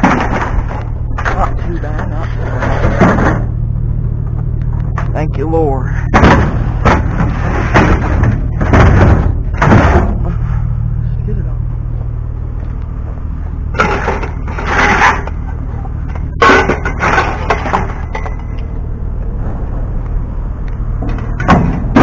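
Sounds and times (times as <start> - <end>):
steady low rumble: 0.0 - 22.0
metal pipes scraping and clattering: 13.7 - 18.7.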